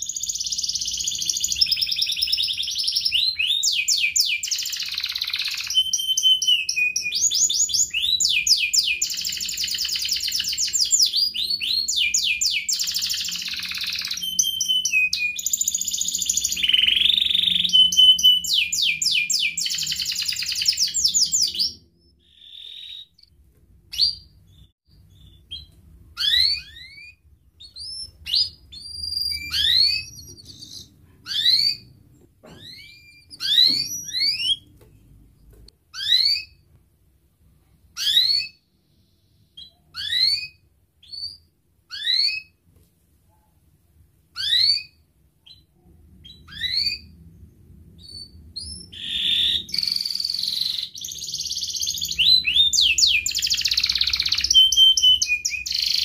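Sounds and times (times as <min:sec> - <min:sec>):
canary singing trills: 0:00.0 - 0:34.7, 0:48.0 - 0:56.0
canary chirps: 0:00.0 - 0:36.8, 0:37.8 - 0:42.6, 0:44.3 - 0:56.0.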